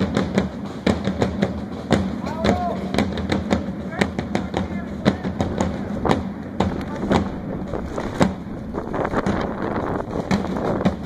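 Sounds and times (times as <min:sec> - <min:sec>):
steady rumble: 0:02.8 - 0:11.0
sharp cracks: 0:05.1 - 0:11.0
wind on microphone: 0:05.4 - 0:11.0.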